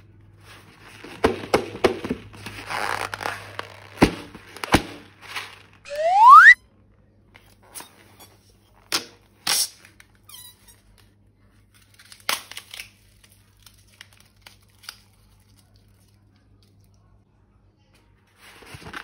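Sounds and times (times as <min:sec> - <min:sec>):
brief squeak: 0:05.9 - 0:06.6.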